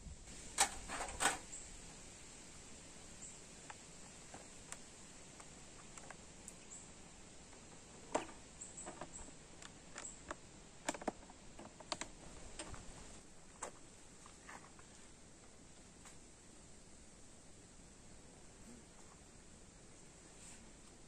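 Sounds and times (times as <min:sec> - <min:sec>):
plastic case clicks and clacks: 0:08.1 - 0:12.8.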